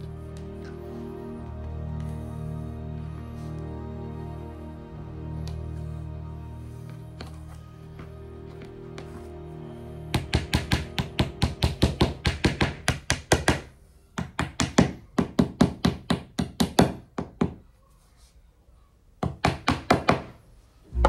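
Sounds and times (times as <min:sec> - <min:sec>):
hammer tapping wooden dowels: 0:10.1 - 0:17.6, 0:19.2 - 0:20.4.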